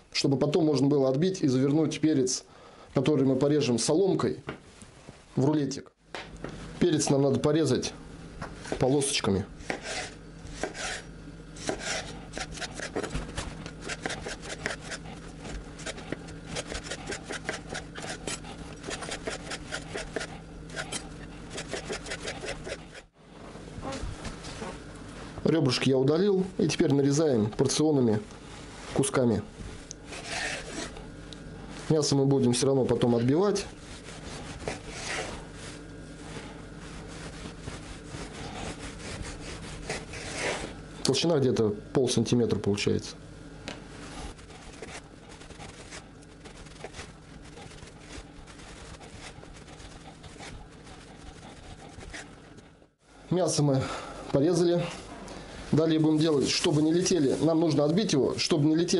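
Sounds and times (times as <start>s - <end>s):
knife sawing through meat: 9.6s - 13.1s, 13.8s - 23.1s, 30.1s - 31.0s, 38.0s - 40.7s, 44.4s - 52.4s
knife slicing on wooden board: 9.6s - 13.2s.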